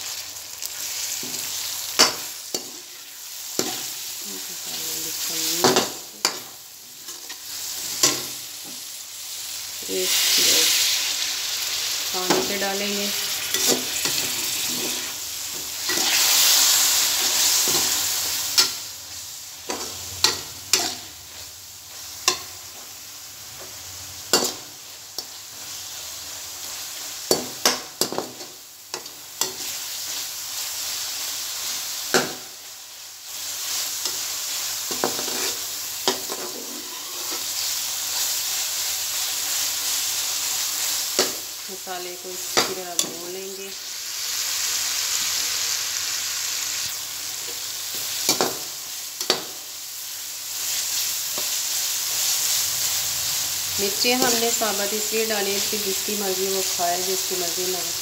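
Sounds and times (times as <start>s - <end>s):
masala sizzling in hot oil: 0.0s - 58.0s
metal spoon scraping a pan: 13.2s - 15.2s, 19.7s - 21.1s, 34.9s - 37.6s.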